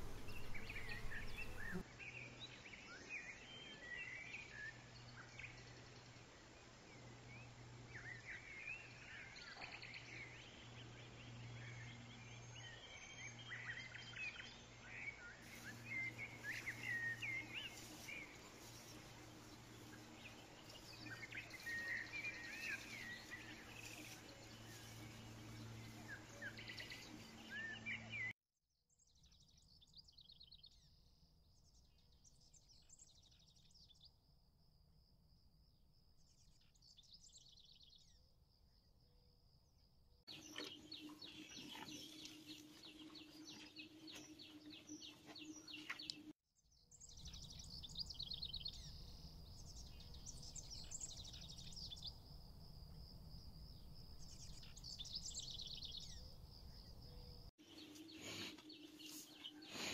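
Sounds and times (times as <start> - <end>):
songbirds chirping and trilling: 0.0 - 28.3, 40.3 - 59.9.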